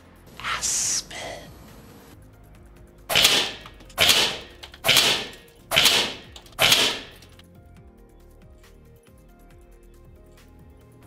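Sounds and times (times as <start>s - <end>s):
air rifle shots: 3.1s - 7.4s.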